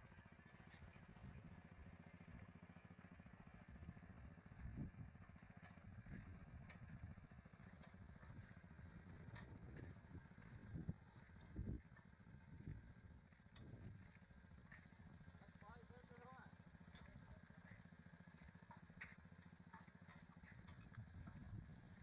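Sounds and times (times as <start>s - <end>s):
light ticks: 16.9s - 17.8s.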